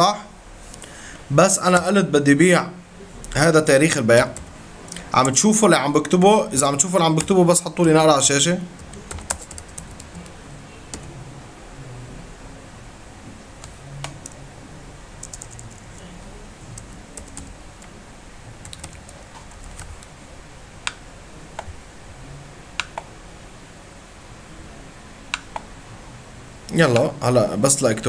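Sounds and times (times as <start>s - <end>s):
faint low hum: 0.0s - 28.0s
mouse clicks: 22.8s - 23.1s.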